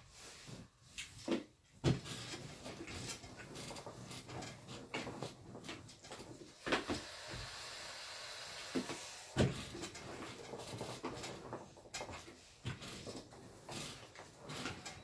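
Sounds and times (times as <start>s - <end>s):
soft steam hiss: 7.0s - 9.4s.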